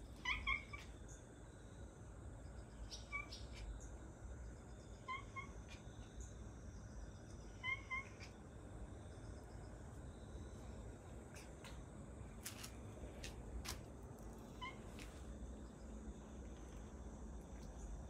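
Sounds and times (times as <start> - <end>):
cat chirping meows: 0.2 - 0.9, 2.8 - 3.7, 5.0 - 5.8, 7.6 - 8.4, 14.5 - 14.9.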